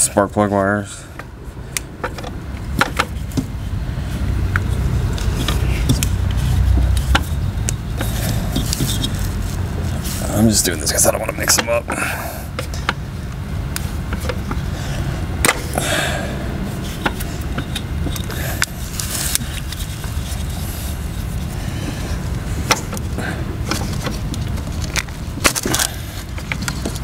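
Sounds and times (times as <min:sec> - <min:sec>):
hands rubbing plastic and rubber: 0:02.8 - 0:11.8, 0:16.7 - 0:27.0.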